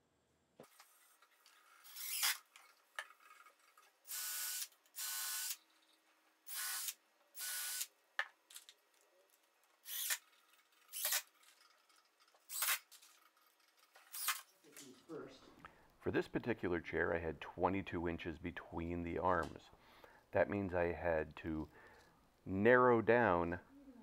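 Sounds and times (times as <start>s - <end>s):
cordless drill bursts: 1.8s - 2.5s, 4.0s - 5.6s, 6.5s - 7.9s, 9.8s - 10.2s, 10.9s - 11.3s, 12.5s - 12.8s, 14.1s - 14.5s.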